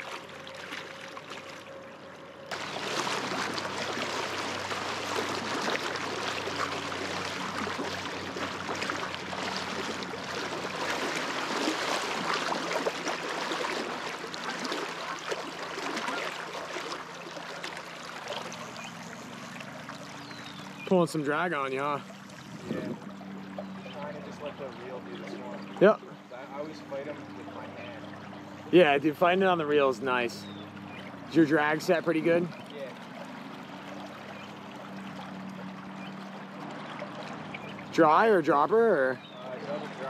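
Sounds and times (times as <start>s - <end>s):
river current rushing: 0.0s - 23.6s.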